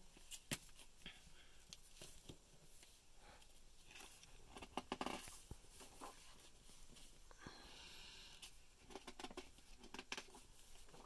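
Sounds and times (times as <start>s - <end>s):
book pages rustling: 1.7s - 7.2s.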